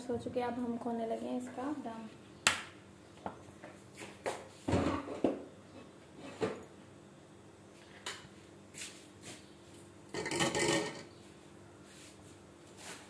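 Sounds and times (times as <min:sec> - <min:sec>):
lid clattering: 0:10.1 - 0:11.1.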